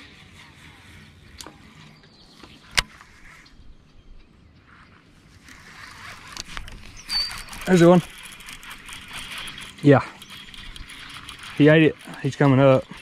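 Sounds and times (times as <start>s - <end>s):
fishing reel retrieving: 5.4s - 13.0s
sharp reel click: 5.5s - 13.0s.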